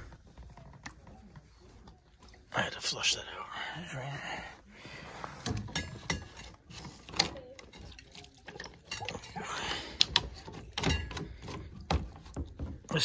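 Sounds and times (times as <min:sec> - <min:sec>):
water trickling: 0:07.4 - 0:11.7
clicks and knocks of plastic pipe: 0:09.9 - 0:13.0.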